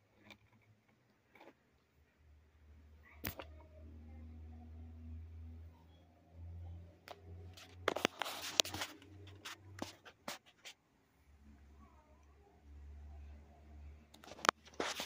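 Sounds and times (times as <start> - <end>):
kitten claws scratching plastic: 7.1 - 10.8, 14.2 - 15.0.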